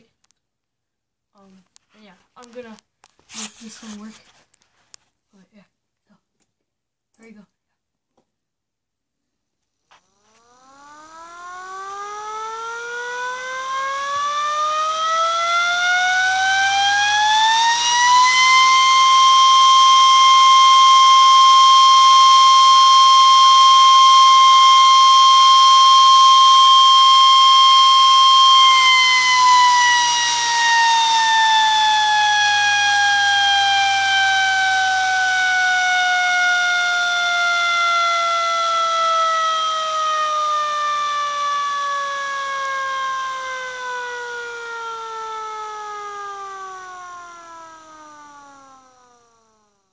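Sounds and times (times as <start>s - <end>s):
siren wailing: 9.9s - 49.8s.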